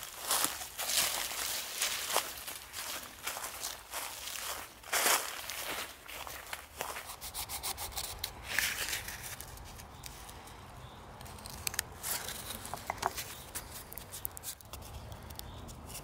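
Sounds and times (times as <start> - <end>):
footsteps crunching in dry leaves: 0.0 - 10.3, 12.0 - 14.2.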